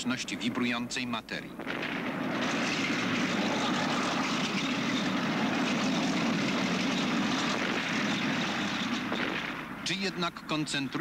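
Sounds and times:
armoured vehicle engine running: 2.2 - 11.0.

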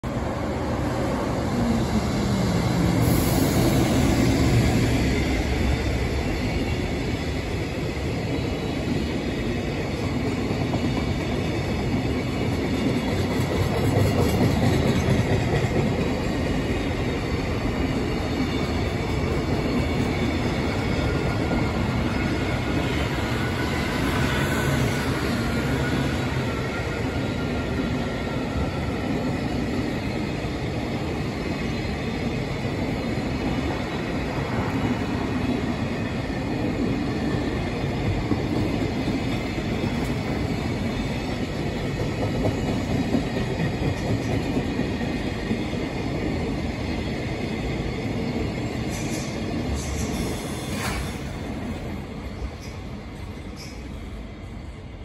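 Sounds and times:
train rumble: 0.0 - 55.0
train wheels clattering on rail joints: 10.0 - 17.0, 37.2 - 46.4, 48.1 - 54.0.

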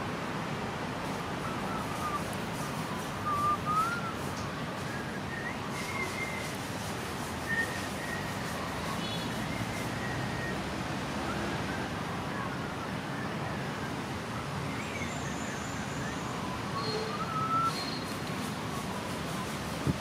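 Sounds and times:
steady background hiss: 0.0 - 20.0
wavering whistled notes: 14.7 - 18.2.

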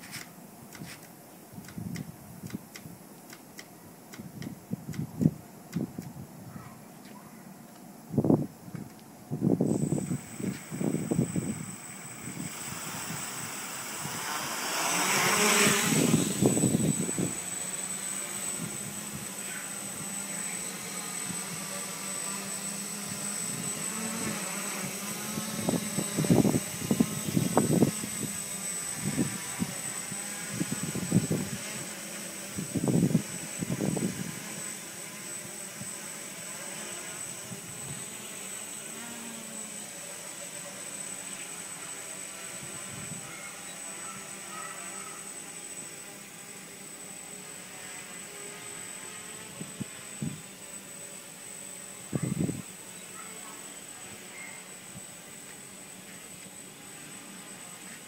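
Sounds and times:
drone motors whining: 0.0 - 58.0
prop wash rumbling on microphone: 8.1 - 20.2, 22.9 - 31.9.

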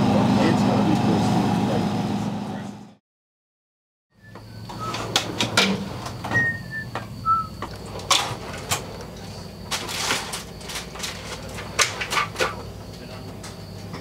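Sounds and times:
metal tools clattering in drawer: 7.8 - 14.0.

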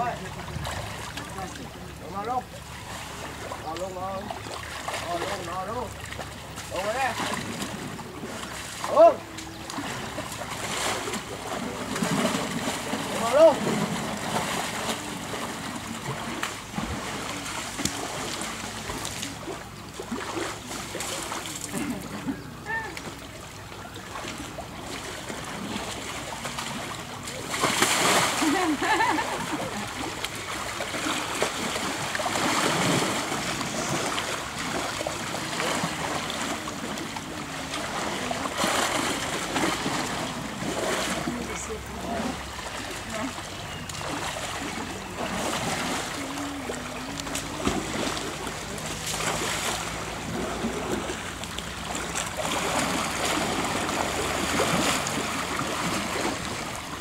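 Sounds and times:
water splashing and lapping: 0.0 - 57.0
faint voices murmuring: 35.0 - 51.1.

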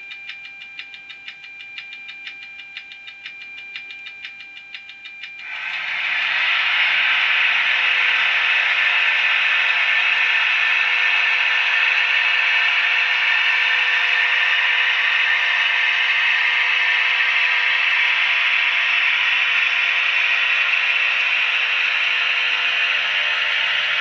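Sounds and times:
constant hum: 0.0 - 24.0
model trains whirring and rattling: 5.4 - 24.0.

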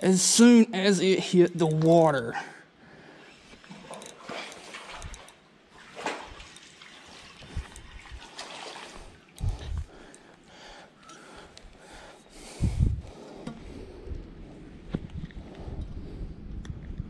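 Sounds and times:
fish splashing in water: 4.2 - 9.4.

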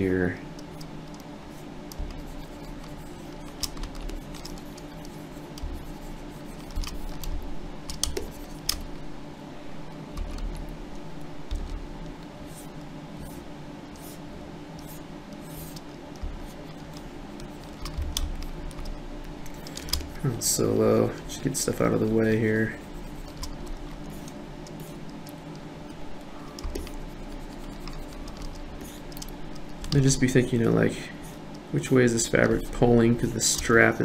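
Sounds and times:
low hum: 0.0 - 34.0
computer mouse and keyboard clicks: 0.5 - 8.9, 10.1 - 13.4, 14.8 - 20.2, 22.9 - 30.9, 32.2 - 34.0.

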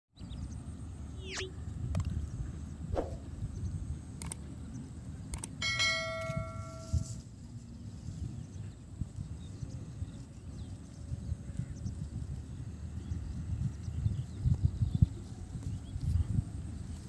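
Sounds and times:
wind rumble on microphone: 0.2 - 17.0
sharp mouse clicks: 4.2 - 4.4, 5.3 - 5.6
notification bell ding: 5.6 - 7.2.

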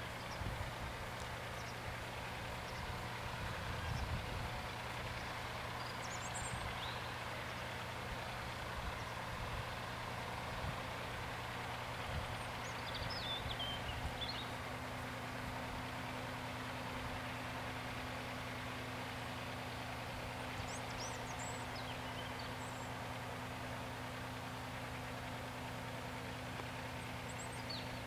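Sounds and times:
outdoor background noise: 0.0 - 28.0
bird chirps: 20.6 - 22.9, 27.3 - 28.0.

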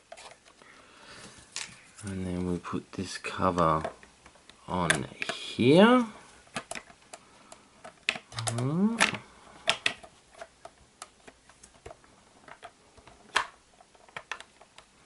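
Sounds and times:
plastic clicks and taps: 7.8 - 14.9.

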